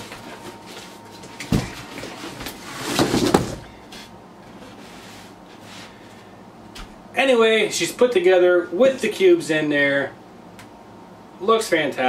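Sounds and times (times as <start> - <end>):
cardboard scraping and rustling: 0.1 - 6.0.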